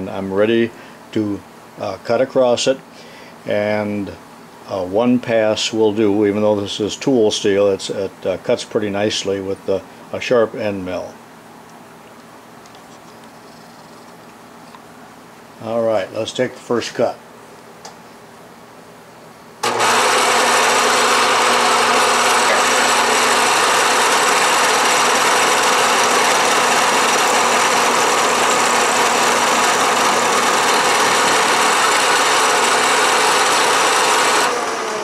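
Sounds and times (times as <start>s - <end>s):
milling machine cutting steel: 19.6s - 35.0s.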